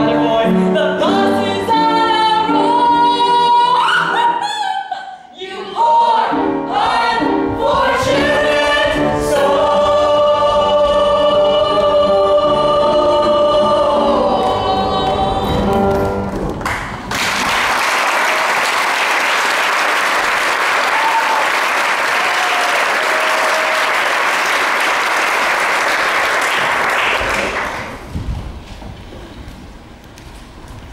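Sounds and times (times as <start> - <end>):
group singing: 0.0 - 16.2
audience applauding: 16.5 - 28.1
audience cheering: 17.2 - 27.9.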